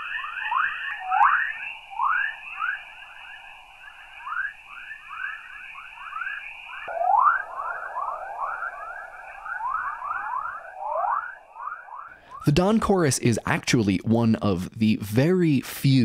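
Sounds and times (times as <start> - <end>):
quick rising chirps: 1.0 - 12.5.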